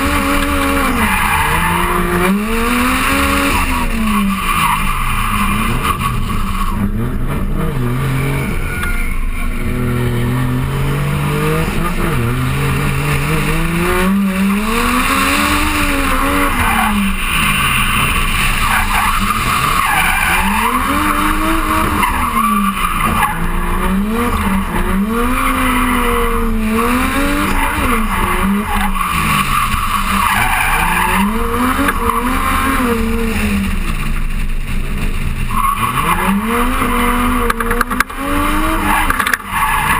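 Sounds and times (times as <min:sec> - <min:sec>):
race car engine revving: 0:00.0 - 0:39.9
tyres squealing: 0:14.5 - 0:33.2.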